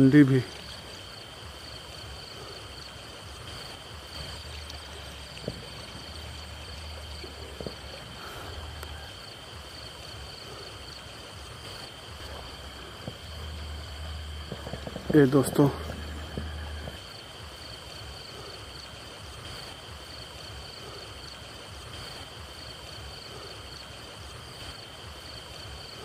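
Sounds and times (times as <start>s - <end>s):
night insects chirring: 0.0s - 26.0s
low rumble: 12.1s - 17.0s.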